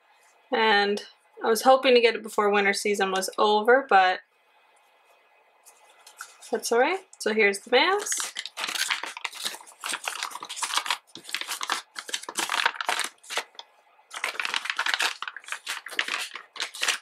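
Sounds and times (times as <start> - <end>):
plastic bag crinkling: 5.7 - 6.7, 7.9 - 17.0.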